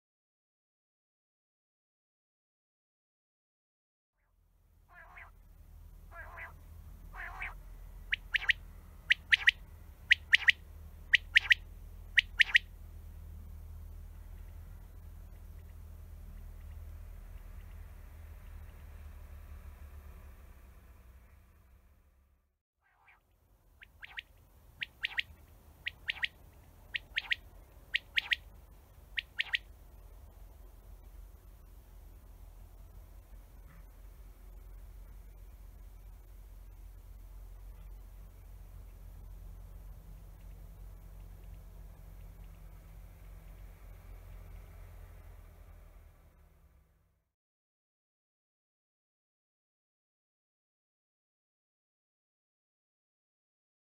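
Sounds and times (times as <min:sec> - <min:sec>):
husky bird note: 0:04.9 - 0:05.4, 0:06.1 - 0:11.6
quail singing whistled song: 0:04.9 - 0:05.4, 0:06.1 - 0:12.7, 0:23.8 - 0:29.7.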